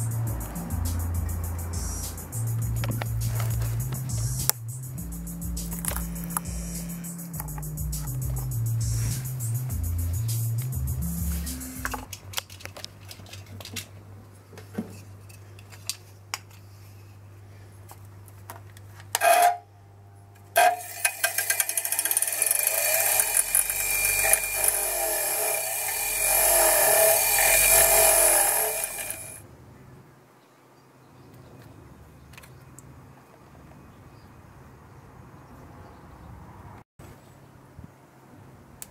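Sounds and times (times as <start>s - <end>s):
wire wheel scraping metal: 19.1s - 19.7s, 20.6s - 29.4s
bench grinder motor humming: 20.6s - 29.4s.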